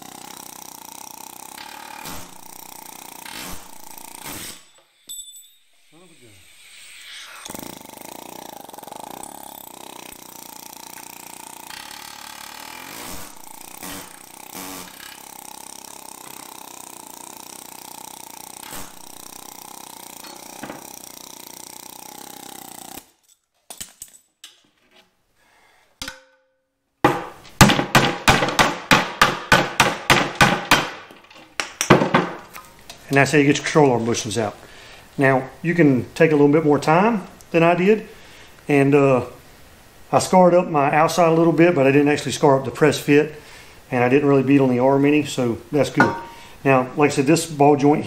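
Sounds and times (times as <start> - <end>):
background hum: 0.0 - 48.0
hammer striking metal: 3.4 - 6.3, 26.0 - 32.3, 46.0 - 46.4.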